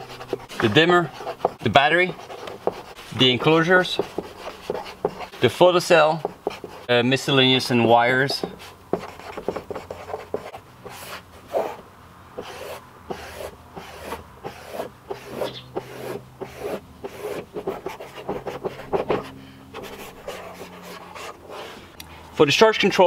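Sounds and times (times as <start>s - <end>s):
marker pen squeaking on paper: 0.0s - 5.4s, 8.3s - 11.8s, 12.4s - 21.7s.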